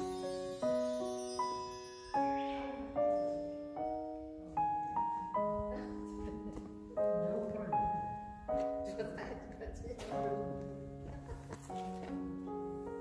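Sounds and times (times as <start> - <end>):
slow gentle piano melody: 0.0 - 13.0.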